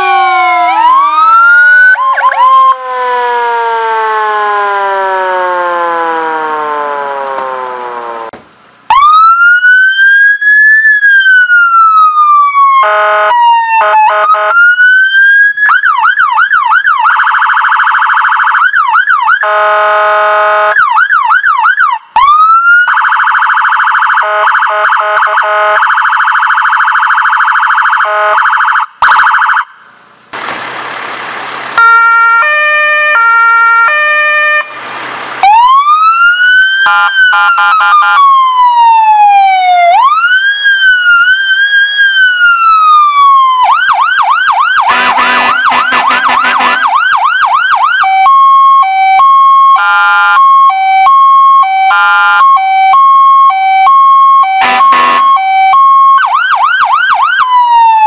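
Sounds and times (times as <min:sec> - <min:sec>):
electronic siren wailing and yelping: 0:00.0 - 0:08.3, 0:08.9 - 0:29.8, 0:31.8 - 0:34.8, 0:35.4 - 0:58.0
buzzing electronic horn: 0:44.9 - 0:47.0, 0:54.6 - 0:55.3.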